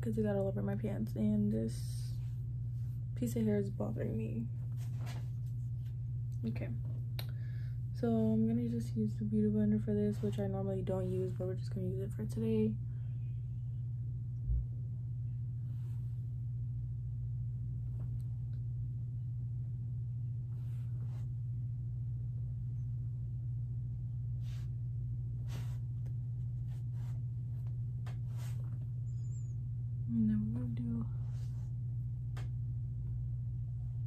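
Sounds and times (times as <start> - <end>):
steady low hum: 0.0 - 34.0
faint rustles or breaths: 20.5 - 21.3, 25.4 - 26.0.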